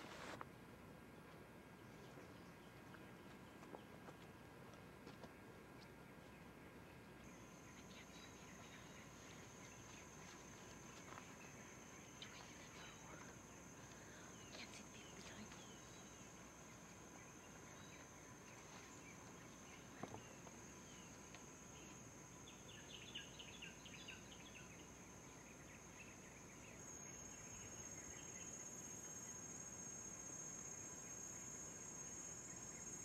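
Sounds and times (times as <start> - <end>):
faint bird chirps: 6.8 - 29.4.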